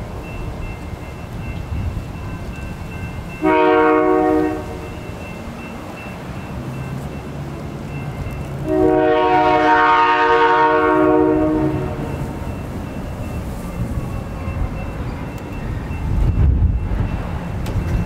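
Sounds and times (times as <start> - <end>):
locomotive air horn blasts: 3.4 - 4.9, 8.6 - 12.4.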